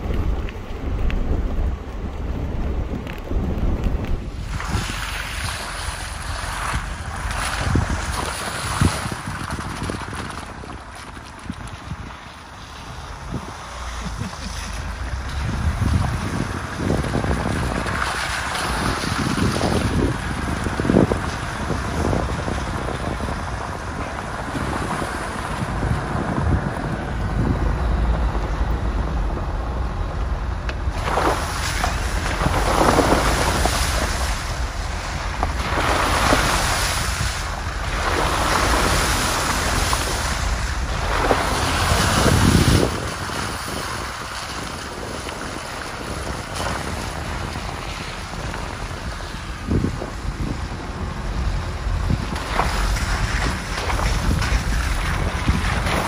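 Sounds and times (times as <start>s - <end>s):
off-road vehicle engine rumble: 0.0s - 56.0s
wind buffeting microphone: 0.0s - 56.0s
surges of rushing noise: 13.2s - 56.0s.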